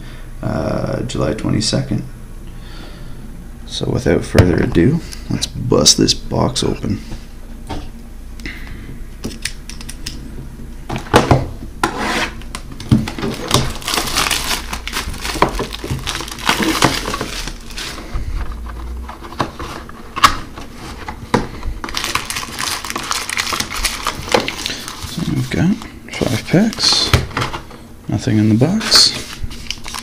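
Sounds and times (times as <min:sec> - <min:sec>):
plastic shrink-wrap tearing: 0:12.5 - 0:18.0, 0:21.8 - 0:25.6, 0:29.2 - 0:30.0.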